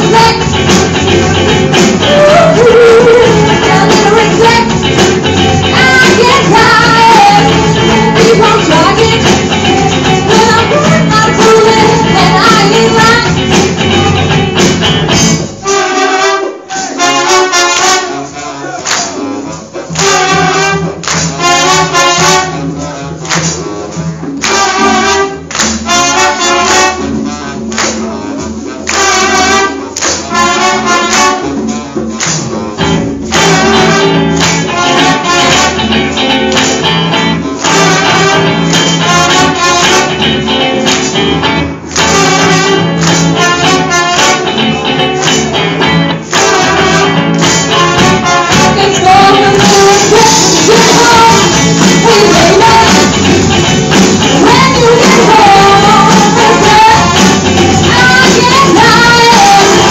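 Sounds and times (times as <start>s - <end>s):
soul band with brass: 0.0s - 59.9s.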